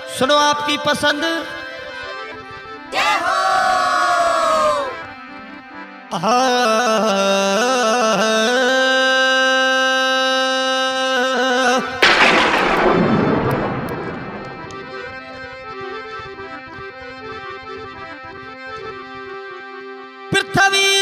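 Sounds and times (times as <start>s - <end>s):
loud crash: 12.0s - 15.7s
low drone: 12.0s - 16.0s.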